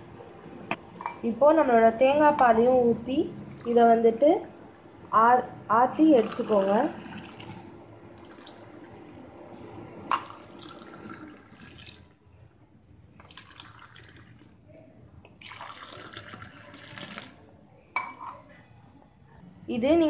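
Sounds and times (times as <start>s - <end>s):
coffee splashing as poured: 6.2s - 7.6s, 8.2s - 8.9s, 10.2s - 12.1s, 13.2s - 14.6s, 15.3s - 17.4s.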